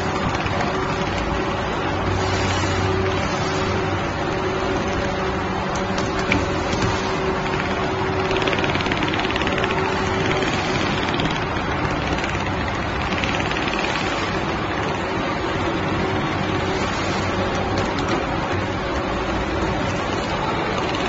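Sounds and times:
sewing machine mechanical hum: 0.0s - 21.0s
sewing machine needle clatter: 5.8s - 15.0s.

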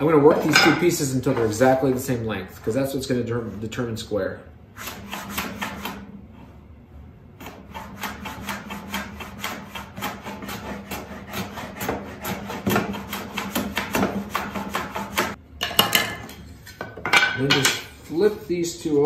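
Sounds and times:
hand plane shaving wood: 7.4s - 15.4s
plane scraping: 7.4s - 15.4s.

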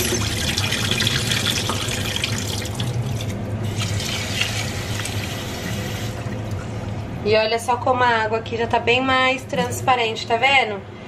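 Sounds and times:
faucet water running into pot: 0.0s - 6.4s.

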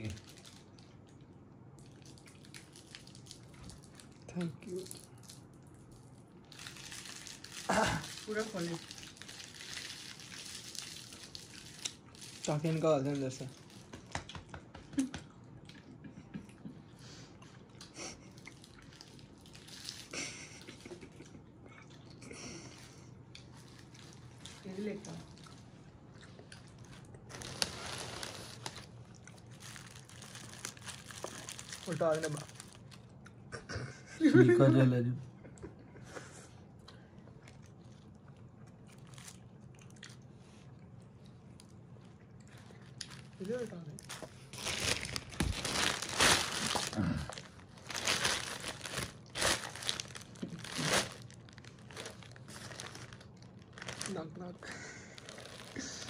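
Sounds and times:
packaging crinkling and crackling: 0.0s - 1.2s, 1.8s - 14.5s, 18.5s - 20.8s, 26.5s - 33.2s, 38.9s - 40.2s, 42.4s - 56.0s.

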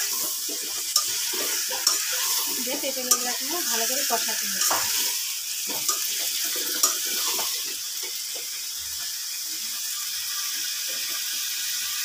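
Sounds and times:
food sizzling in a pan: 0.0s - 12.0s
spatula knocking and scraping: 4.6s - 5.1s.

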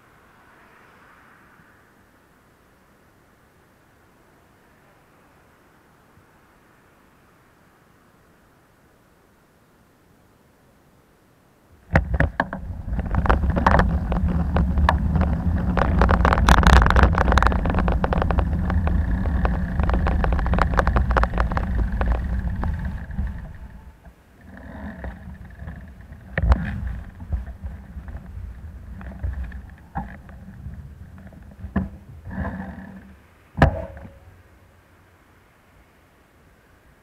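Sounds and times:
wind rumble on microphone: 11.7s - 34.7s
rattling clicks and knocks: 11.9s - 32.6s.

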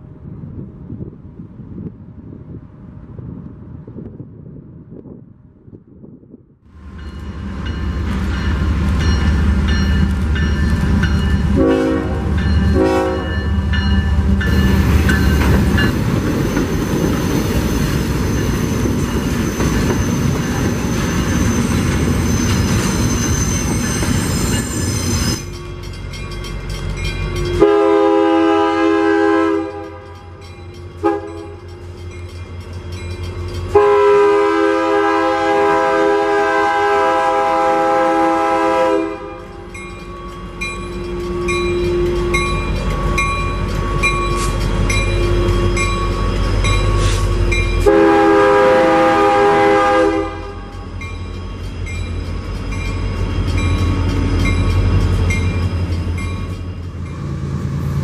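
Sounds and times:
train rolling rumble: 0.0s - 58.0s
train horn blasts: 11.3s - 14.6s, 27.3s - 31.8s, 33.6s - 39.8s, 47.0s - 51.0s
locomotive multi-note horn: 11.4s - 14.3s, 27.3s - 30.4s, 31.0s - 31.8s, 33.6s - 39.8s, 47.1s - 51.0s.

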